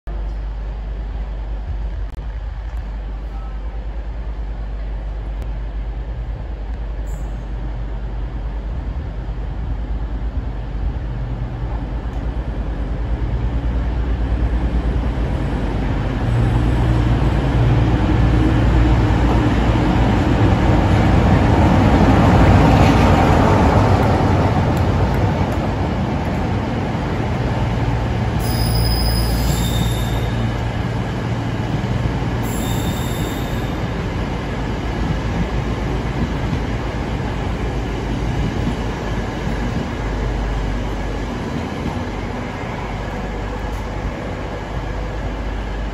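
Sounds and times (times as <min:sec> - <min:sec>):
diesel locomotive engine: 0:00.1 - 0:45.9
train carriages rumbling: 0:00.1 - 0:45.9
high wheel squeals: 0:28.4 - 0:30.6, 0:32.4 - 0:33.9.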